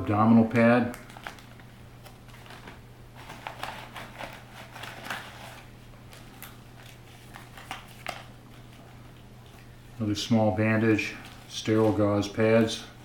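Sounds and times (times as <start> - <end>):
packets rustling and crinkling: 0.5 - 9.8.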